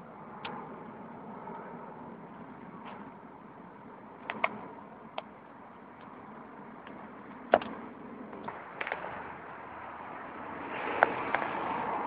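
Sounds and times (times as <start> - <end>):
distant jet airliner roar: 0.0 - 12.0
sharp clicks: 4.2 - 4.6.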